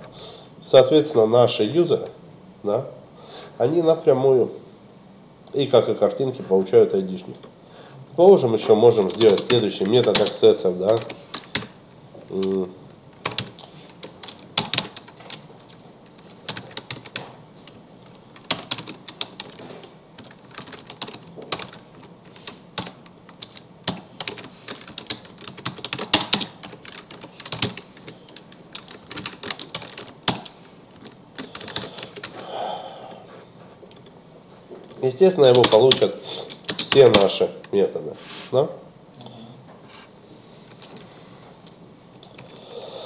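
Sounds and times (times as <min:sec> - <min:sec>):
keyboard typing: 0:08.6 - 0:32.4, 0:33.9 - 0:34.2, 0:34.8 - 0:37.8.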